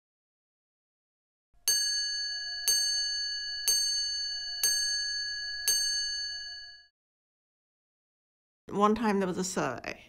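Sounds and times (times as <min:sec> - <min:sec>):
bell-like chime: 0:01.7 - 0:06.9.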